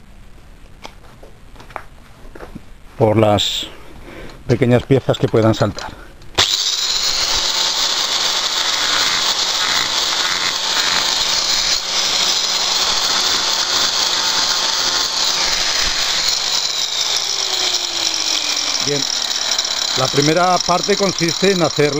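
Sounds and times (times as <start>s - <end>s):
angle grinder cutting tile: 6.4s - 21.9s.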